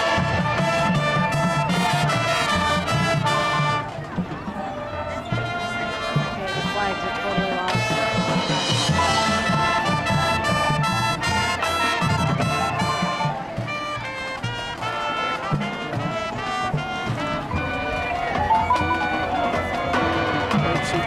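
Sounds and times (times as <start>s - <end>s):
marching band brass chords: 0.0s - 21.0s.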